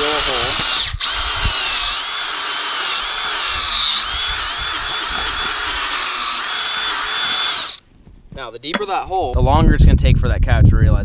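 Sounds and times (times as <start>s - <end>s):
power drill boring into soil: 0.0s - 7.8s.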